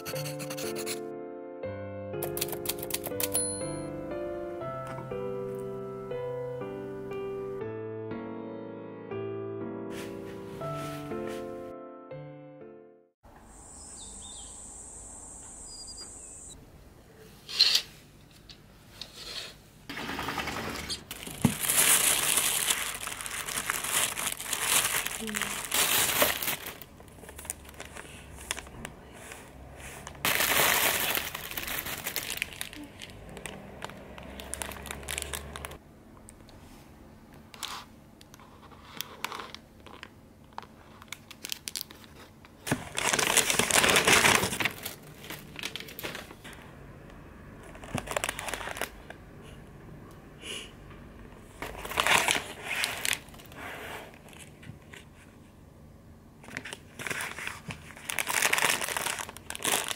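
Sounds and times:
plastic bag and cellophane crinkling: 21.0s - 35.8s, 38.4s - 46.6s, 47.6s - 49.2s, 51.6s - 55.2s, 56.4s - 59.9s.

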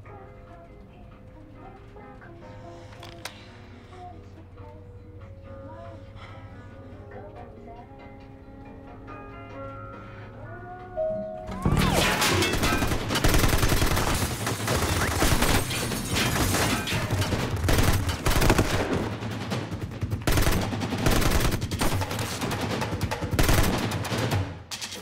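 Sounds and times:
automatic gunfire bursts: 12.2s - 24.6s.

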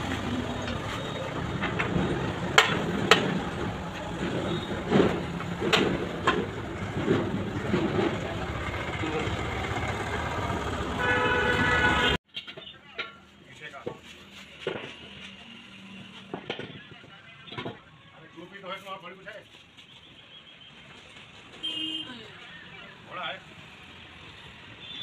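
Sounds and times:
road traffic rumble: 0.0s - 25.0s
vehicle horn honking: 10.9s - 12.2s.

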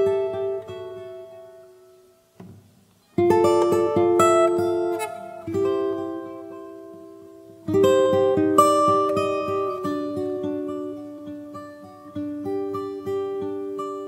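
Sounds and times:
acoustic guitar strummed chords: 0.0s - 14.0s.

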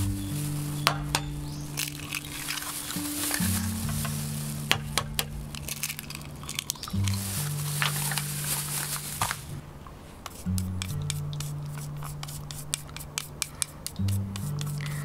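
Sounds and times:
plastic bag rustling: 0.0s - 12.8s
background music with low notes: 0.0s - 15.0s
eggs cracking into bowl: 4.6s - 7.2s.

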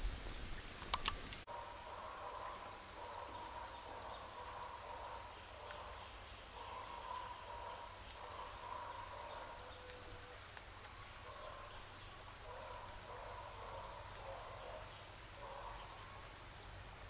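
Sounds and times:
birds calling: 0.9s - 16.8s.

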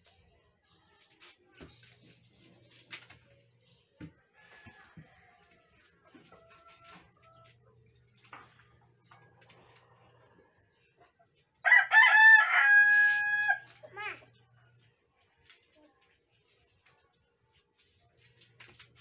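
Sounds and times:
rooster crowing: 11.6s - 13.7s.

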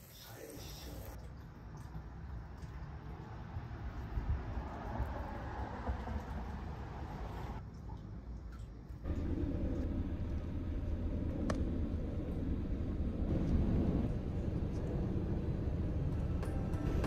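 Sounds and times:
car engine and tyre noise: 2.8s - 7.7s, 9.0s - 17.0s.

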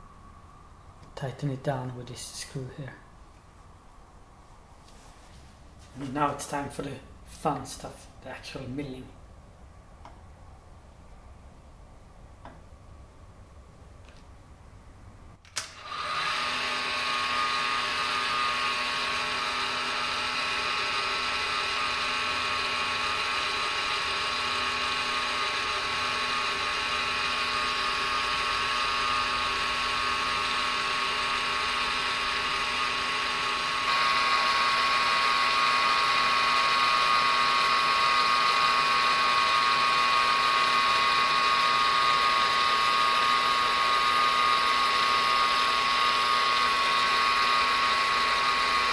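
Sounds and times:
motor switch click: 15.4s - 15.9s
milling machine whine: 15.6s - 48.9s.

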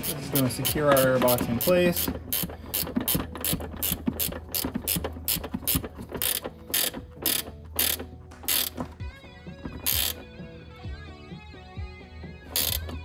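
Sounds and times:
ratcheting wrench clicking: 0.0s - 9.0s, 9.6s - 10.3s, 12.5s - 13.0s.

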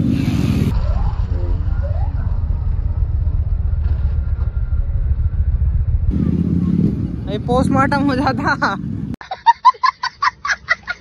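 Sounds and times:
motorcycle engine revving: 0.0s - 9.2s.

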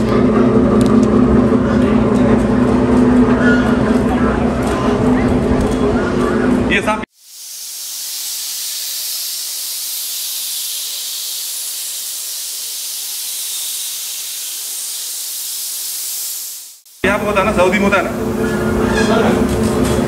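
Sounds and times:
steady high-pitched hiss: 7.1s - 17.9s.

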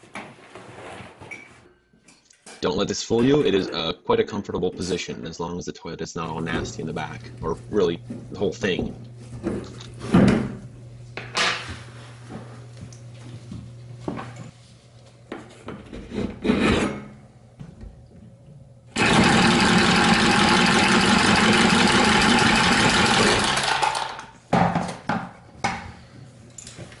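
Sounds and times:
tubing cutter running: 18.9s - 24.3s.

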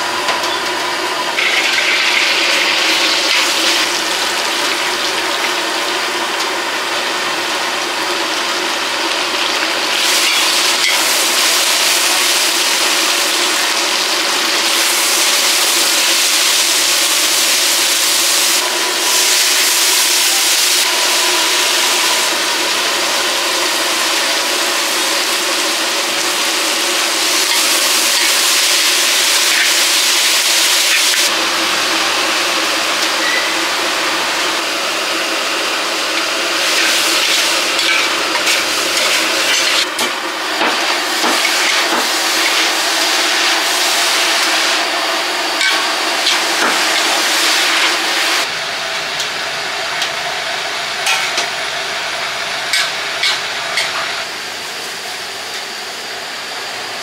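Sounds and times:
meat sizzling in a wok: 0.0s - 57.0s
vegetables stir-frying: 0.0s - 57.0s
metal spatula scraping a pan: 36.8s - 40.0s.

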